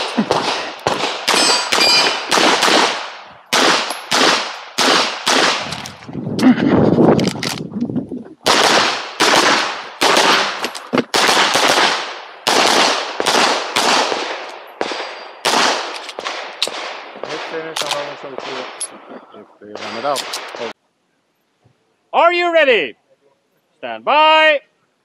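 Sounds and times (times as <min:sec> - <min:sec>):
pistol shots: 0:00.0 - 0:05.8, 0:08.4 - 0:19.0.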